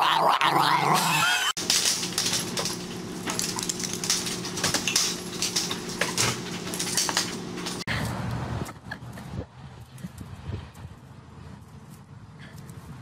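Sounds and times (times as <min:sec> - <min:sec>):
wire pen rattling and clinking: 0:01.6 - 0:07.9
steady low hum: 0:01.6 - 0:09.4.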